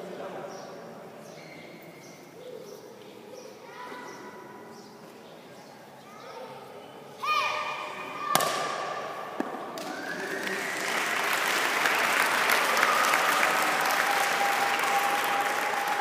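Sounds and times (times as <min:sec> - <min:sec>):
crowd applauding: 0:09.8 - 0:16.0.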